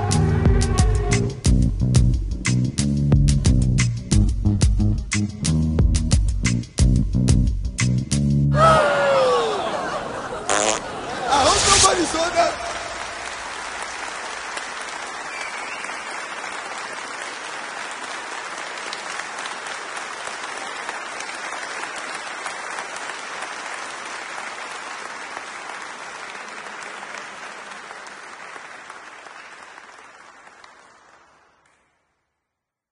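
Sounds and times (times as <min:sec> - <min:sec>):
audience applause: 0:08.6 - 0:32.0.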